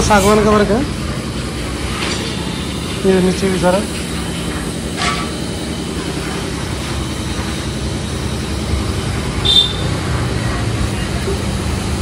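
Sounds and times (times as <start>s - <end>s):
machinery droning: 0.0s - 12.0s.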